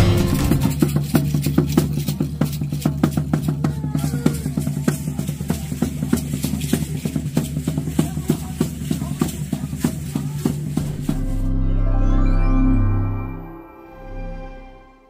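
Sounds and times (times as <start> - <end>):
fast even drumbeat: 0.0 - 11.5
low sustained drone: 10.8 - 15.0.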